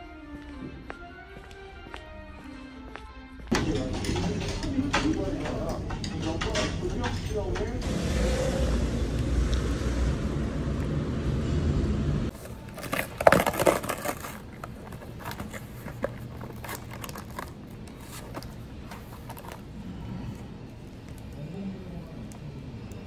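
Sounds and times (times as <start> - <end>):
low rumble of street traffic: 3.7 - 23.0
plastic wrapper being torn open: 12.3 - 18.5
packaging crinkling and clicking: 12.3 - 19.7.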